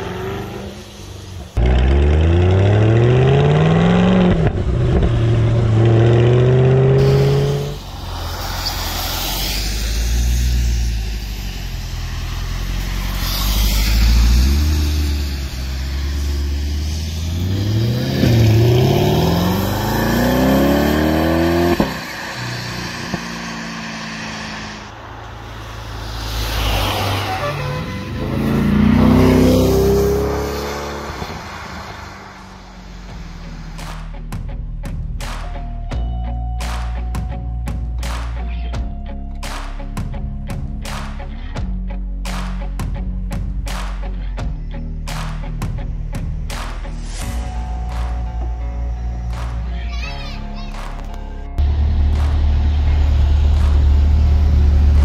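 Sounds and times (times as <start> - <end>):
car engine accelerating hard: 0.0 - 33.2, 51.6 - 55.0.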